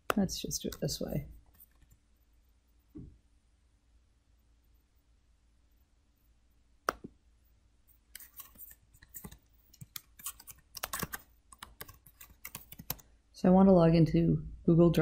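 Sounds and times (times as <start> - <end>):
keyboard typing: 8.2 - 13.1.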